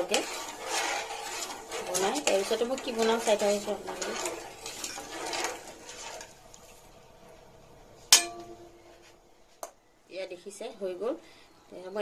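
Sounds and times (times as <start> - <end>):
spoon scraping metal pan: 0.0 - 6.4
spoon clanging on pan: 8.1 - 8.8.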